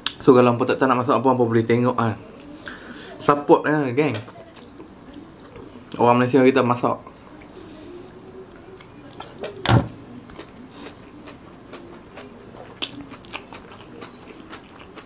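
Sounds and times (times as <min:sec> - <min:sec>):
chewing with crunches: 0:04.3 - 0:06.0, 0:07.0 - 0:15.0.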